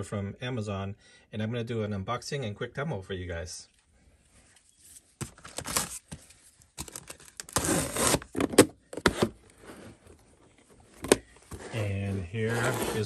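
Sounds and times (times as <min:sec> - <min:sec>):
cardboard rustling and scraping: 0:04.8 - 0:13.0.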